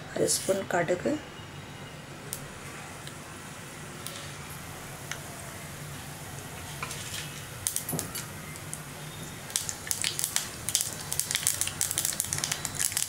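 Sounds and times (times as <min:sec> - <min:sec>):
seeds sizzling in hot oil: 0:06.7 - 0:13.0
seeds popping and spluttering: 0:07.2 - 0:08.9, 0:09.5 - 0:13.0.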